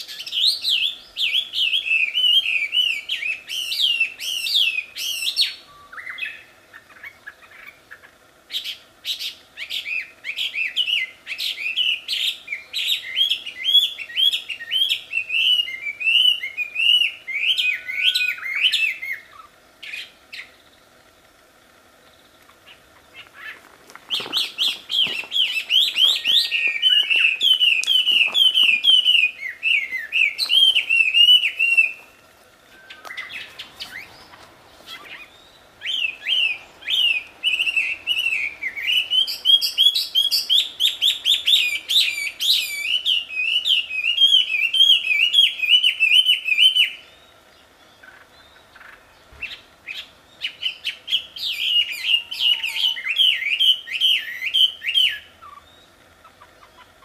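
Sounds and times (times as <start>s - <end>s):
songbird whistled runs: 23.4s - 32.1s, 32.7s - 47.0s.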